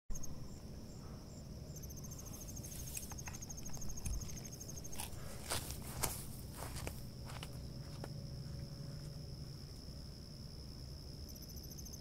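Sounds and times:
fast pulsed insect trill: 0.1s - 12.0s
insect chorus: 0.1s - 12.0s.

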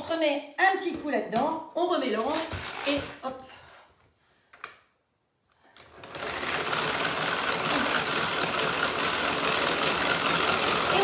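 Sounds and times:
hand-cranked mixer whirring: 2.4s - 3.1s, 5.8s - 11.0s.

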